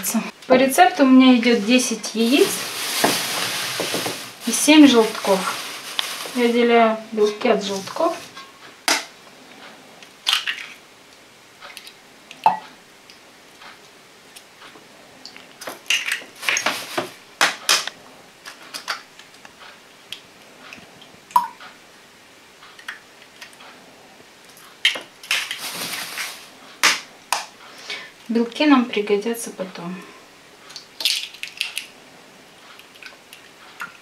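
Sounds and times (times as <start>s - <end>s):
plastic bag crinkling: 1.3s - 8.4s, 15.5s - 19.1s, 25.2s - 27.1s
eggshells cracking: 30.7s - 31.9s.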